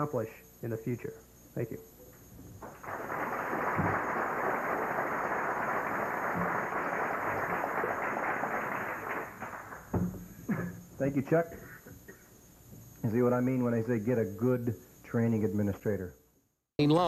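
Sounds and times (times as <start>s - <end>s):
audience applauding: 2.6s - 10.0s.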